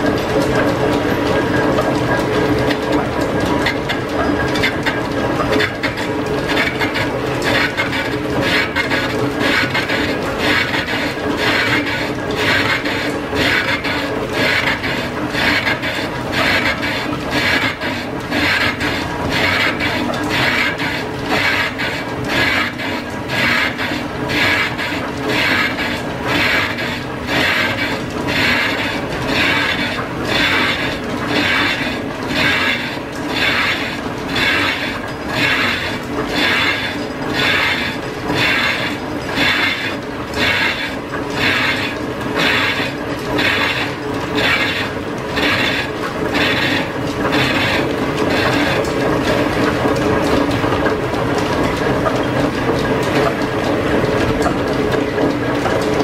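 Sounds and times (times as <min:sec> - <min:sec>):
metal lathe cutting: 0:00.0 - 0:56.0.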